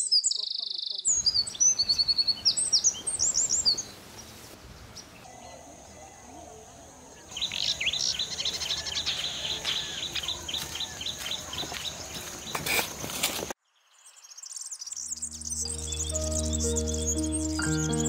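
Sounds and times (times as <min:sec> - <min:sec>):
small birds chirping: 0:00.0 - 0:18.0
soft background music: 0:15.2 - 0:18.0.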